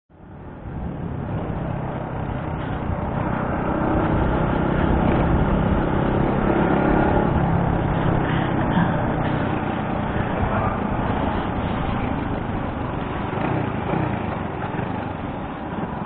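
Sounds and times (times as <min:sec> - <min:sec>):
motorcycle engine humming: 0:00.1 - 0:16.0
wind and road noise: 0:00.1 - 0:16.0.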